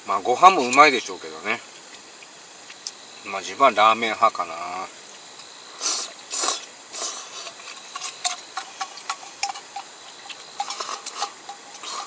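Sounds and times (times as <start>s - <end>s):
slurping noodles: 5.8s - 9.4s, 10.2s - 12.0s
chopsticks clicking on metal bowl: 7.9s - 12.0s.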